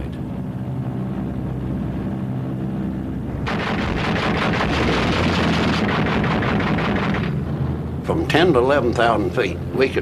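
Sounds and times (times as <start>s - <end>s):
aircraft piston engines droning: 0.0s - 10.0s
rapid anti-aircraft gunfire: 3.4s - 7.5s.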